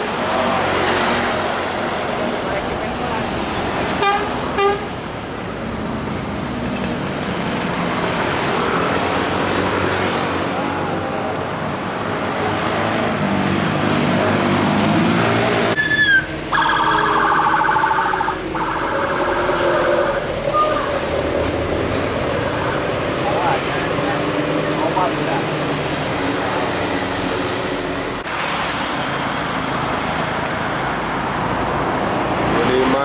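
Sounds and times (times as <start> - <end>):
bus engine and traffic noise: 0.0 - 33.0
multi-tone bus horn: 4.0 - 5.0, 15.8 - 21.0.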